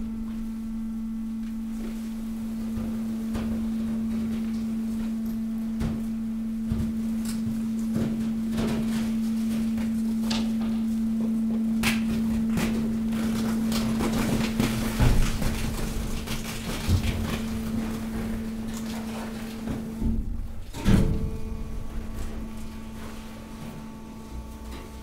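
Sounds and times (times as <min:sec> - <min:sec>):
hydraulic power unit hum: 0:00.0 - 0:25.0
plastic and cardboard crushing: 0:11.8 - 0:25.0.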